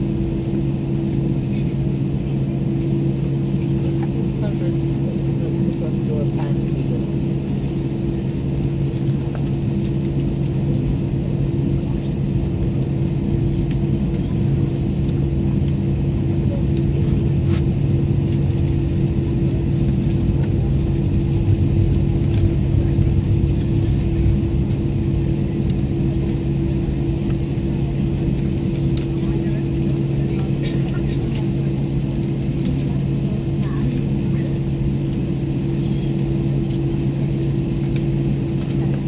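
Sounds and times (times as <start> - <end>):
aircraft engines low rumble: 0.0 - 39.0.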